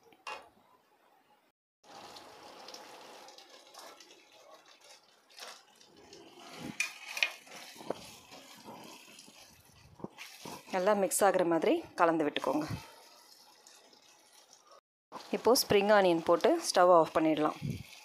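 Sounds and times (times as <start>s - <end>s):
sauce sizzling in a pan: 1.8s - 10.9s, 12.4s - 18.0s
spatula scraping a pan: 3.5s - 11.0s, 12.4s - 14.8s, 17.4s - 18.0s.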